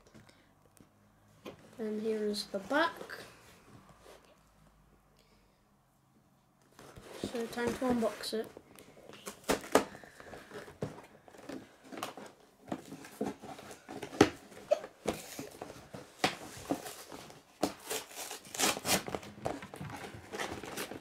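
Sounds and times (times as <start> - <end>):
cardboard scraping and tearing: 16.4 - 21.0.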